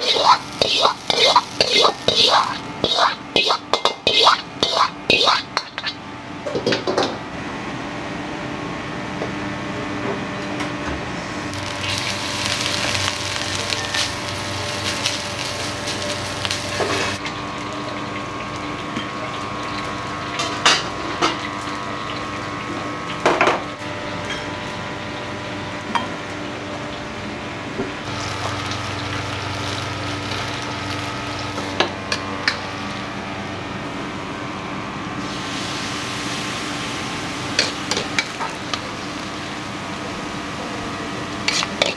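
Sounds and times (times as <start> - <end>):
metal pans clanking: 0.0 - 7.1
burners and extractor fan humming: 0.0 - 41.9.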